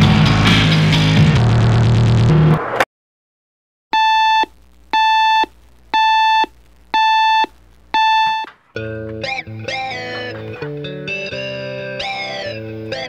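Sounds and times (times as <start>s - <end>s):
alarm clock beeping: 4.0s - 8.5s
hand pressing alarm clock: 8.0s - 8.5s.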